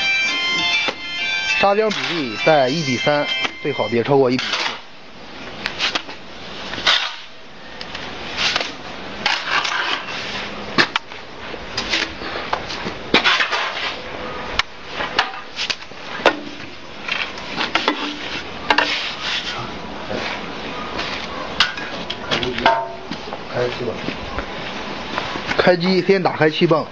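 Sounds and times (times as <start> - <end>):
scraping of wet mortar: 3.7 - 4.9, 5.6 - 7.4, 8.3 - 11.0, 11.8 - 14.0, 14.9 - 22.6.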